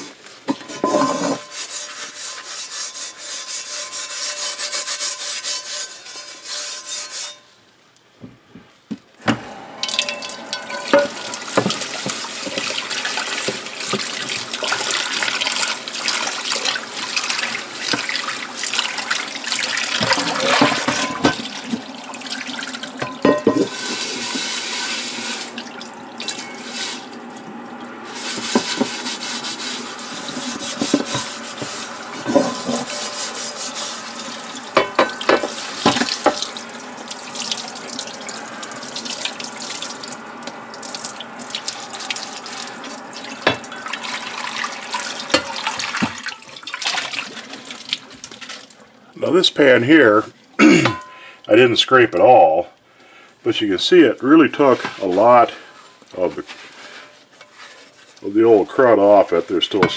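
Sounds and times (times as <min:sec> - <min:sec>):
steel wool scrubbing pan: 0:00.0 - 0:07.5, 0:09.6 - 0:27.3, 0:28.0 - 0:40.0, 0:41.8 - 0:47.8, 0:53.8 - 0:59.9
pan knocking: 0:00.5 - 0:07.4, 0:09.3 - 0:15.8, 0:20.0 - 0:21.9, 0:23.0 - 0:25.0, 0:30.2 - 0:33.9, 0:34.7 - 0:36.6, 0:50.8 - 0:51.2
tap water running into sink: 0:09.3 - 0:48.8.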